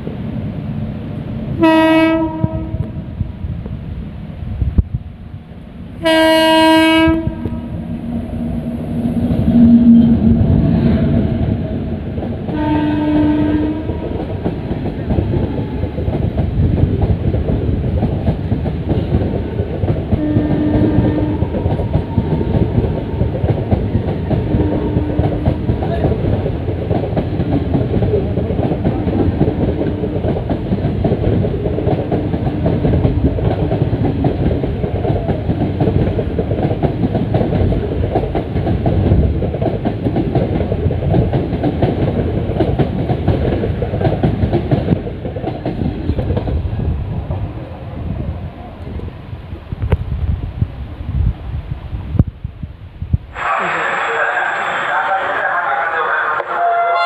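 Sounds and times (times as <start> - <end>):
train rumbling past: 0.0 - 57.0
locomotive horn blaring: 1.6 - 3.0, 6.0 - 7.7, 12.5 - 14.2, 20.2 - 21.6, 24.5 - 25.4, 56.4 - 57.0.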